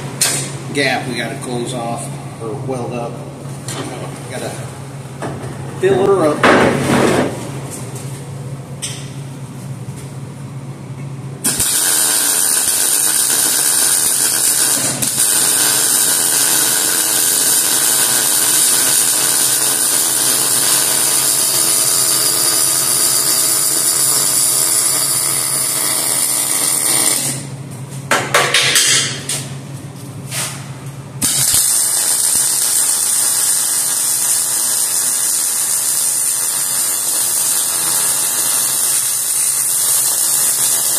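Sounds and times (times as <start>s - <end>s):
welding arc sizzling: 11.4s - 27.6s, 31.2s - 40.9s.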